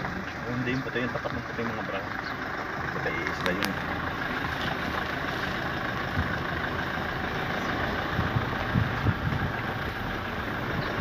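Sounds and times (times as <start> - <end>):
low buffeting thumps: 7.7 - 11.0
wind rumbling on microphone: 7.8 - 11.0.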